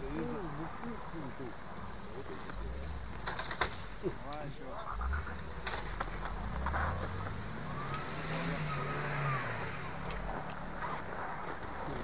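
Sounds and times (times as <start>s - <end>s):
engine revving under load: 4.8s - 12.0s.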